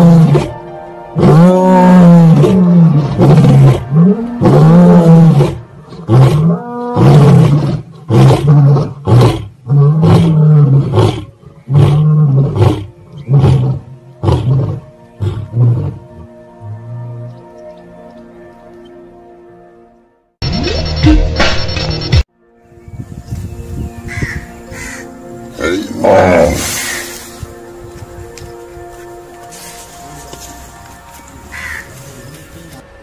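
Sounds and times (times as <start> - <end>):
lions roaring: 25.6 - 27.0.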